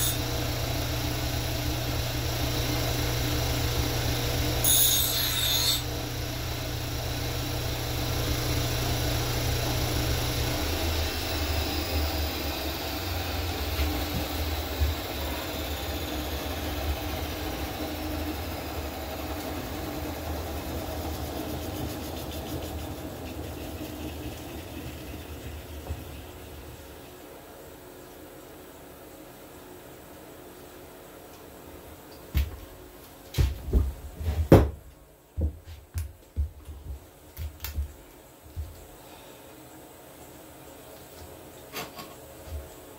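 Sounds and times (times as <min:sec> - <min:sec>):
electric motor whine coasting down: 0:00.0 - 0:04.7, 0:05.8 - 0:27.1.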